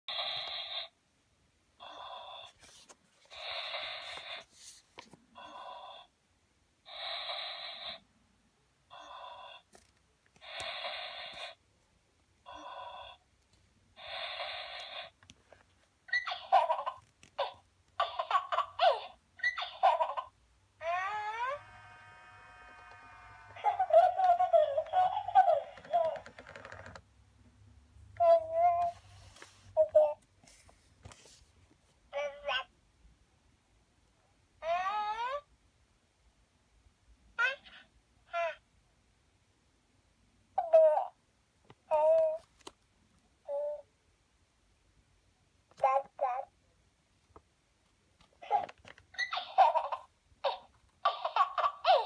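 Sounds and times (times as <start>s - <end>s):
doll recorded baby breathing: 1.8s - 6.1s, 10.4s - 11.6s, 14.0s - 15.2s
baby babbling and giggling: 16.2s - 21.6s, 23.6s - 26.2s, 28.2s - 29.0s, 29.8s - 30.2s, 37.4s - 38.6s, 40.6s - 41.2s, 41.9s - 42.4s, 48.4s - 52.0s.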